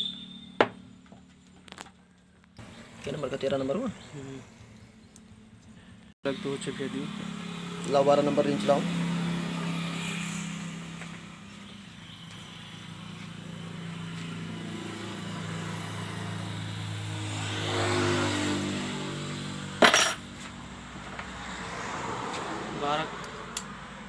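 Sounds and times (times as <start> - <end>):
vehicle engine running: 6.3 - 17.4.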